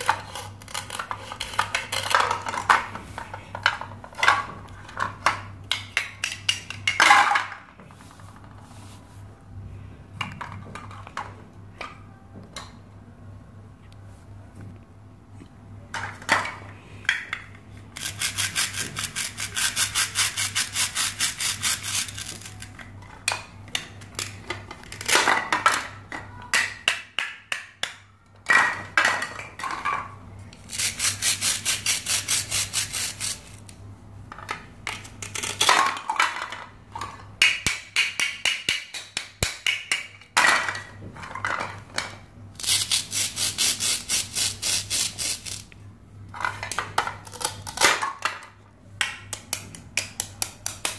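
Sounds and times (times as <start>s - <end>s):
plastic pieces clicking and tapping: 46.4s - 50.9s.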